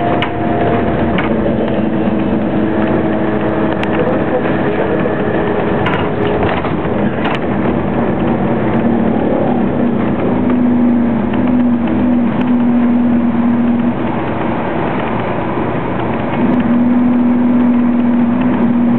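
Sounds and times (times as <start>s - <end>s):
bus engine drone: 0.0s - 18.9s.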